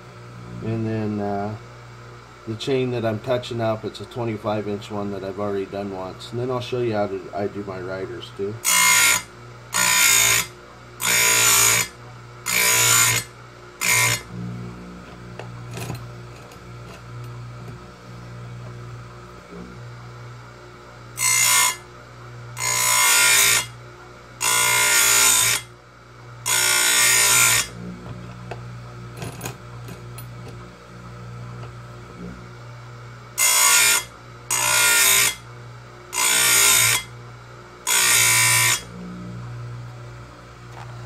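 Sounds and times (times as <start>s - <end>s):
grinder motor humming: 0.0s - 41.0s.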